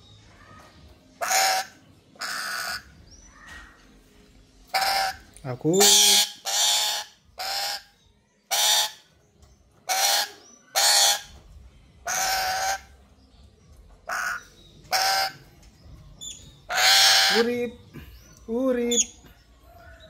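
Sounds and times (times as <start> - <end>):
parrot harsh screeches: 1.2 - 3.8, 4.7 - 7.9, 8.5 - 9.1, 9.9 - 11.4, 12.0 - 12.9, 14.1 - 15.4, 16.6 - 17.5.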